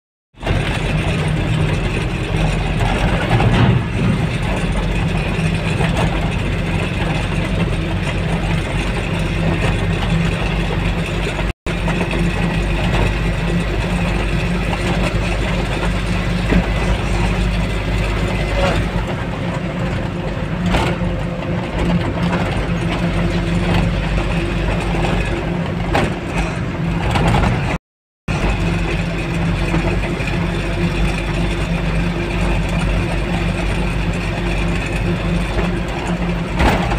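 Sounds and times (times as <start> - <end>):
road noise: 0.4 - 36.9
truck engine running: 0.4 - 36.9.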